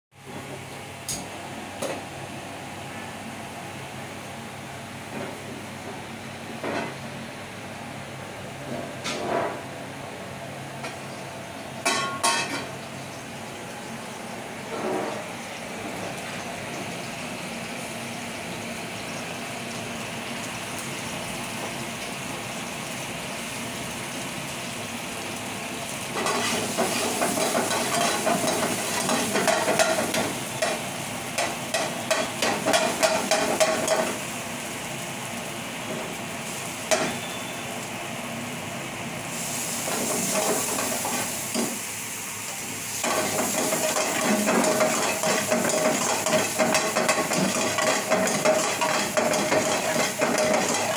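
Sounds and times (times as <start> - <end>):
food sizzling in hot oil: 11.8 - 50.9.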